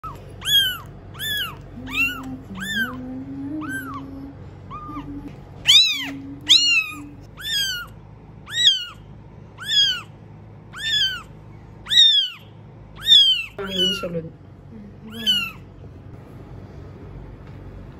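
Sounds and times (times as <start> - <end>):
kitten mewing: 0.0 - 10.1, 10.7 - 14.2, 15.1 - 15.6.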